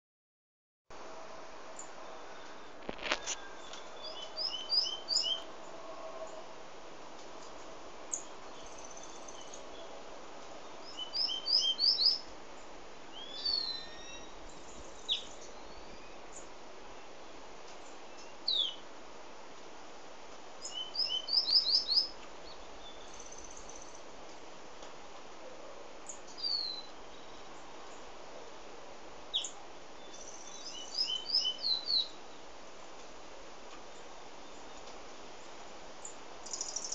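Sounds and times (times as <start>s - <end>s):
steady hiss: 0.9s - 36.9s
bird singing: 1.8s - 6.5s, 7.4s - 10.0s, 10.6s - 17.2s, 17.8s - 18.8s, 20.6s - 24.0s, 26.0s - 28.1s, 29.3s - 32.5s, 33.9s - 36.9s
bird singing slurred whistles: 3.6s - 5.4s, 10.9s - 12.2s, 13.2s - 14.4s, 20.6s - 22.1s, 26.4s - 27.4s, 30.1s - 32.2s.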